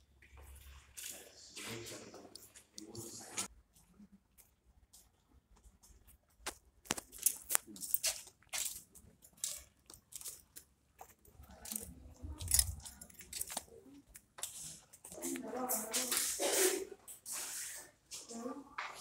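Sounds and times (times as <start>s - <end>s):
footsteps on concrete: 11.0s - 11.2s.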